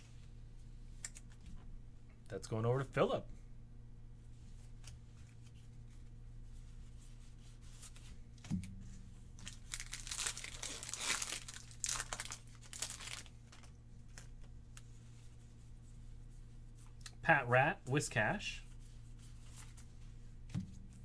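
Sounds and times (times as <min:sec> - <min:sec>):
steady low hum: 0:00.0 - 0:21.0
foil wrapper crinkling and tearing: 0:09.4 - 0:14.4.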